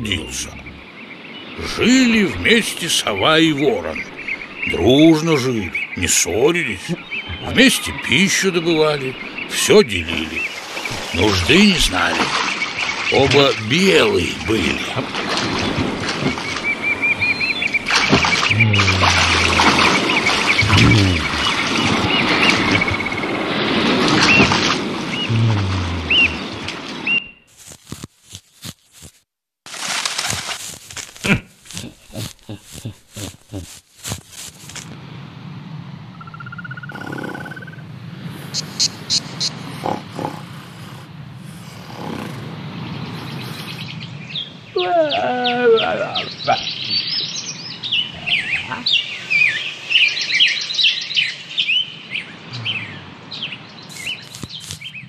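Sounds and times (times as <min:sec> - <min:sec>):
small birds chirping: 0:00.0 - 0:23.4, 0:24.2 - 0:29.1, 0:30.6 - 0:34.9, 0:36.2 - 0:55.0
cartoon crunching taps: 0:27.5 - 0:29.2, 0:30.2 - 0:34.9, 0:53.9 - 0:54.9
light hiss: 0:53.9 - 0:55.0.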